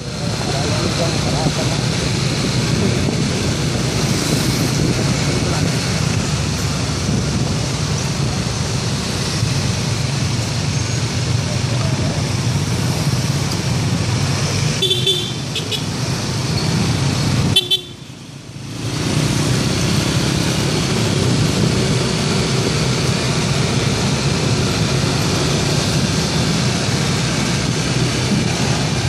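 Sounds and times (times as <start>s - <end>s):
scooter engines on street: 0.0s - 29.0s.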